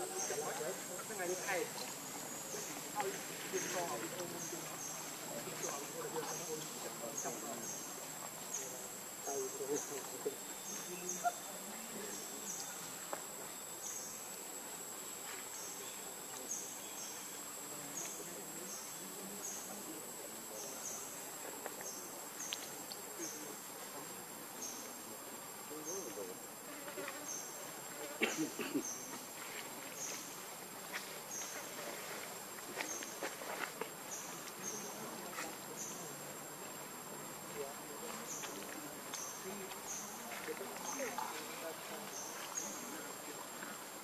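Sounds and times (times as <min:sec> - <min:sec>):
crackles like rustling leaves: 0:00.0 - 0:44.0
insects chirping: 0:00.0 - 0:44.0.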